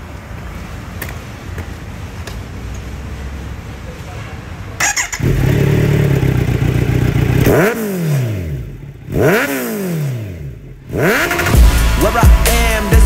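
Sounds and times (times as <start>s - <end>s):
motorcycle engine idling and revving: 4.8s - 13.0s.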